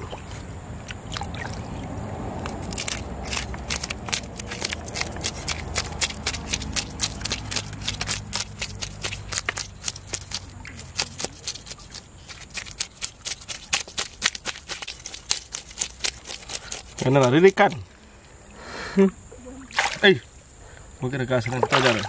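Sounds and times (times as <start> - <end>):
knife scraping fish scales: 2.4 - 17.5.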